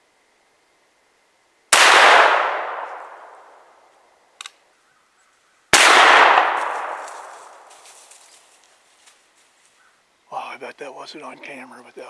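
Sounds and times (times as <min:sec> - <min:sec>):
rifle shot boom: 0:01.8 - 0:03.4, 0:05.8 - 0:07.6.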